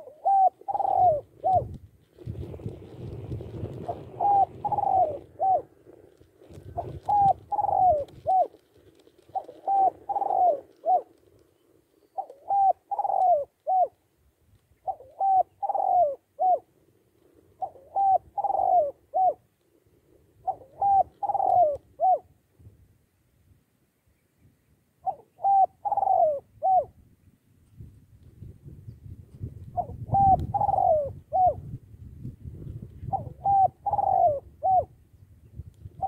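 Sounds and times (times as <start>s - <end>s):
dove cooing: 0.0s - 14.0s, 14.8s - 22.4s, 25.0s - 27.0s, 29.4s - 31.8s, 32.5s - 35.0s.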